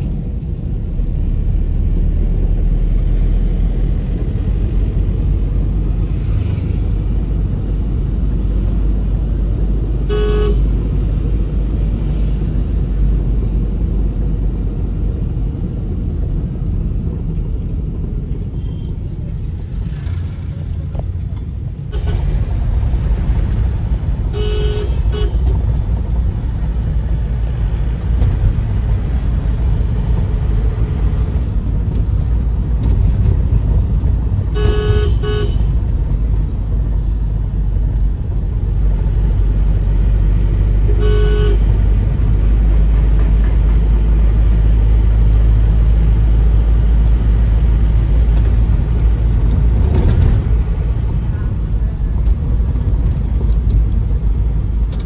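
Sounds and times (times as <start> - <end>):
vehicle rumble on road: 0.0 - 55.0
vehicle horn tooting: 10.1 - 10.6, 24.4 - 25.4, 34.6 - 35.7, 40.9 - 41.7.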